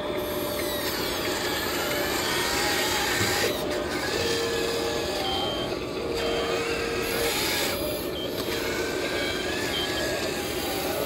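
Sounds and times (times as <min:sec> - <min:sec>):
whir of small electric motors: 0:00.0 - 0:11.0.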